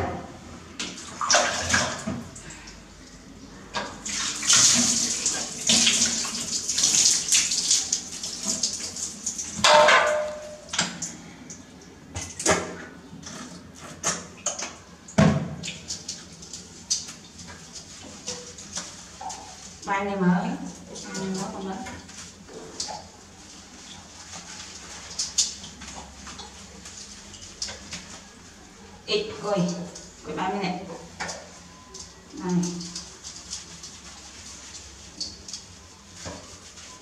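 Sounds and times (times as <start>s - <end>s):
water splashing and running: 0.9s - 2.3s, 4.0s - 10.5s, 15.4s - 28.5s, 32.4s - 37.0s.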